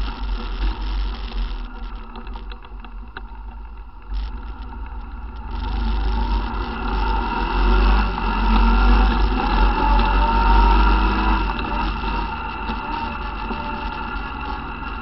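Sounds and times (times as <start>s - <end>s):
light clicks and rattles: 0.0s - 6.4s
atv engine running: 0.0s - 15.0s
steady low rumble: 0.0s - 15.0s.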